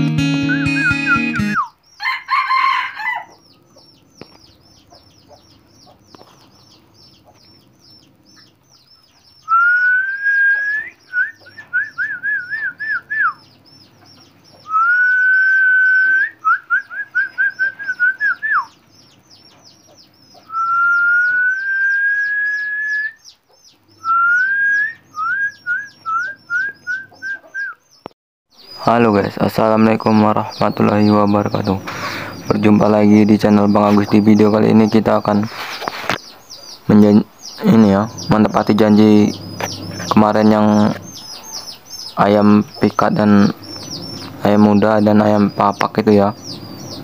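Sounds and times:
loud whistled call: 0.0s - 1.8s, 9.4s - 13.4s, 14.6s - 18.8s, 20.4s - 23.2s, 24.0s - 27.8s
rapid high chirping: 0.0s - 47.0s.

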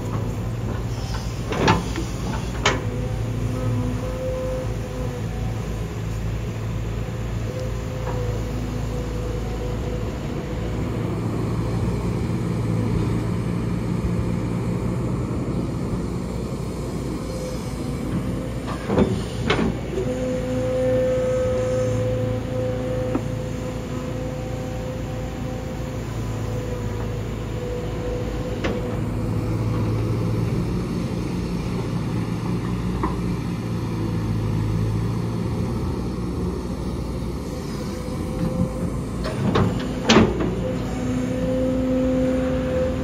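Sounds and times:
excavator engine whining: 0.0s - 43.0s.

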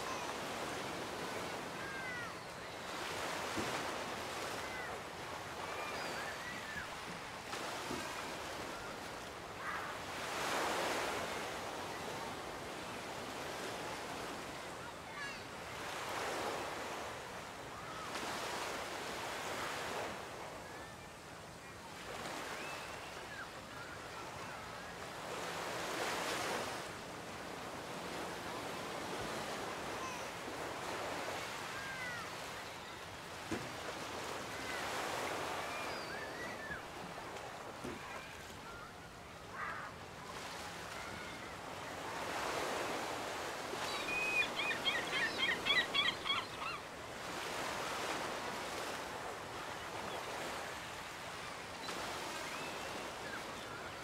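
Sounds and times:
waves washing onto beach: 0.0s - 54.0s
bird calls: 34.5s - 37.0s, 42.2s - 48.9s.

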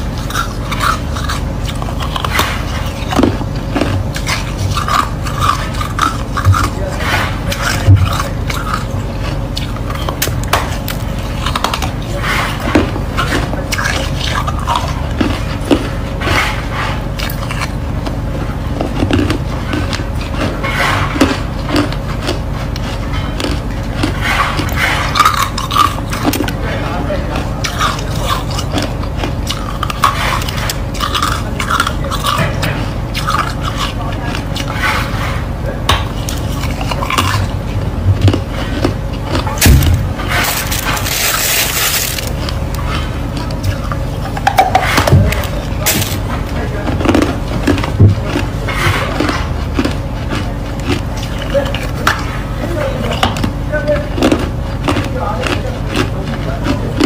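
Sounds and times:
ice being chewed and crunched: 0.0s - 57.0s
ice cracking and snapping: 39.6s - 42.3s.

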